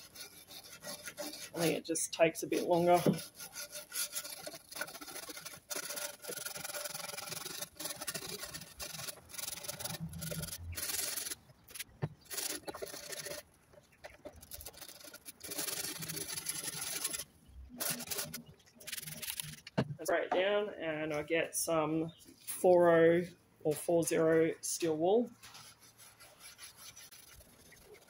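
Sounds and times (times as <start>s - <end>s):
brush scrubbing wood: 0.0s - 13.4s, 14.3s - 17.2s, 17.8s - 19.6s, 24.2s - 28.0s.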